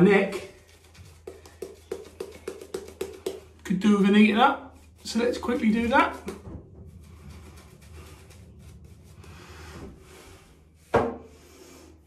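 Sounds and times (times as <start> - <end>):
shaving brush rubbing: 0.2 - 3.5, 4.7 - 10.4.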